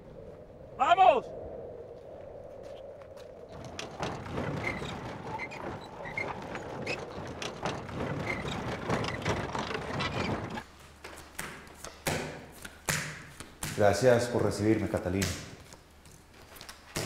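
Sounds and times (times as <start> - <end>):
carriage rattling and creaking: 3.4 - 10.8.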